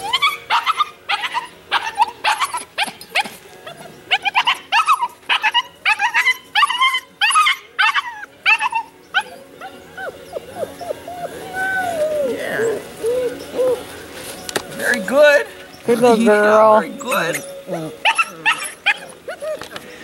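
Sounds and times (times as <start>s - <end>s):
puppy yipping and barking: 0.0s - 13.8s, 17.2s - 19.8s
puppy whining: 0.0s - 13.9s, 17.0s - 19.9s.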